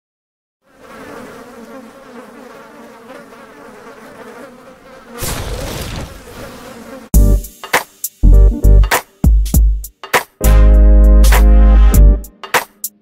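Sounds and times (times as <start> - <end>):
flies buzzing: 0.6 - 8.2.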